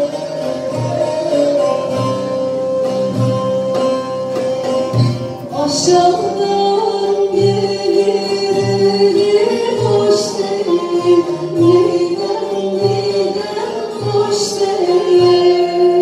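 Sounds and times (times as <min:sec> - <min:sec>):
hand drum beat: 0:00.0 - 0:16.0
plucked strings: 0:00.0 - 0:16.0
woman singing: 0:05.5 - 0:16.0.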